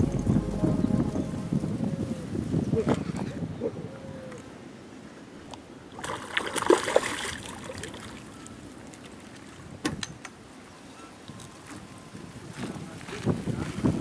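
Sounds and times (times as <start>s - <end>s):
water splashing: 6.0s - 8.1s.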